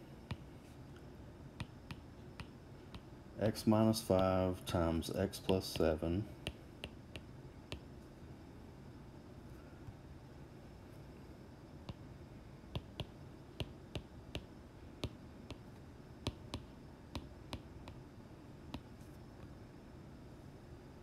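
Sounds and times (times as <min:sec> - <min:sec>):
stylus tapping on glass screen: 0:01.6 - 0:03.1, 0:12.8 - 0:15.6, 0:16.3 - 0:18.0.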